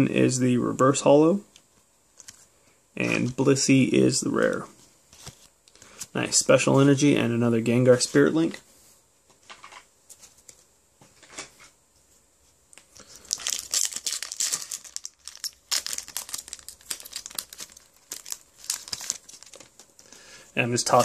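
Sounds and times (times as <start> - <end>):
foil wrapper crinkling: 12.9 - 21.0.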